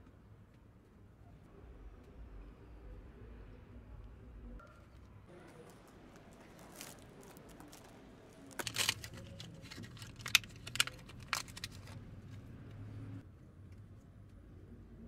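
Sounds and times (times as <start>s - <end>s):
rustling: 4.7s - 12.8s.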